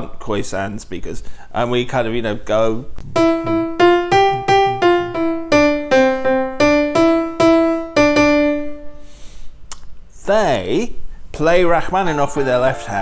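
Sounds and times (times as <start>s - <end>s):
piano playing simple tune: 3.1s - 9.1s, 12.0s - 13.0s.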